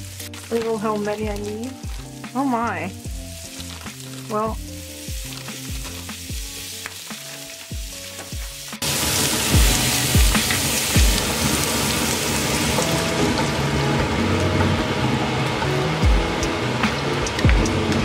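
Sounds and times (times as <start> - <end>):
spoon stirring vegetables: 0.0 - 12.1
vegetables sizzling in a frying pan: 0.0 - 17.1
background music with a beat: 1.2 - 11.8, 12.7 - 18.0.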